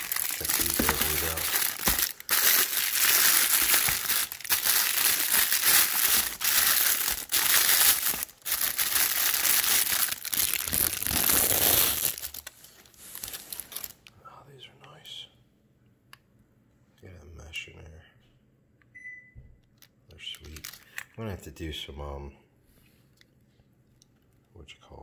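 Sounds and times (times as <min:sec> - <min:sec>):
plastic wrap crinkling: 0:00.0 - 0:14.1, 0:20.3 - 0:21.1.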